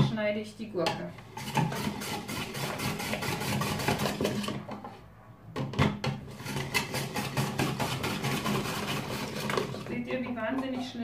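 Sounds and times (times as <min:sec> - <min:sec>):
rotary slicer rasping cucumber: 0:01.3 - 0:04.6, 0:06.3 - 0:09.9.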